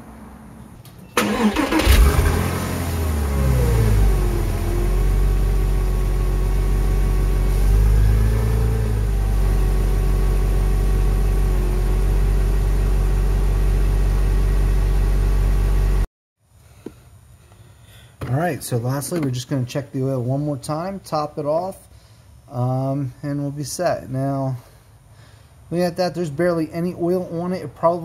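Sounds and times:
car engine idling: 1.2 - 16.0.

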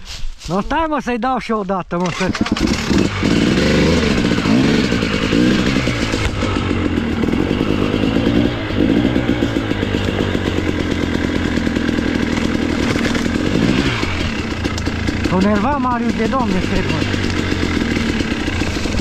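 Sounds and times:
motorcycle engine revving: 2.0 - 19.0.

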